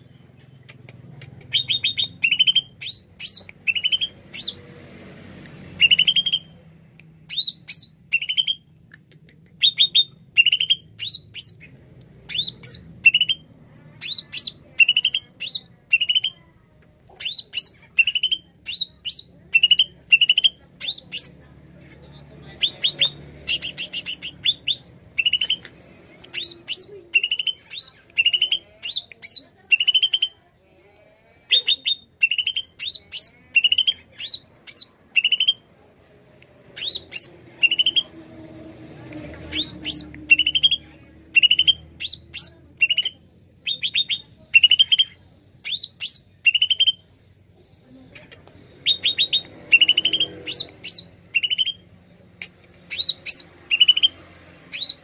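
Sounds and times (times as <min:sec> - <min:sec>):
bird chattering: 0:00.4 - 0:04.6, 0:07.3 - 0:16.5, 0:17.2 - 0:21.4, 0:22.5 - 0:25.6, 0:26.3 - 0:30.4, 0:31.5 - 0:35.6, 0:36.8 - 0:38.1, 0:39.4 - 0:47.0, 0:48.1 - 0:51.8, 0:52.4 - 0:55.0
bird whistling song: 0:01.5 - 0:04.6, 0:05.8 - 0:06.5, 0:07.3 - 0:08.6, 0:09.6 - 0:11.7, 0:12.3 - 0:13.4, 0:14.0 - 0:16.4, 0:22.6 - 0:25.6, 0:31.5 - 0:35.6, 0:36.8 - 0:38.1, 0:39.5 - 0:47.0, 0:48.8 - 0:51.8, 0:52.9 - 0:55.0.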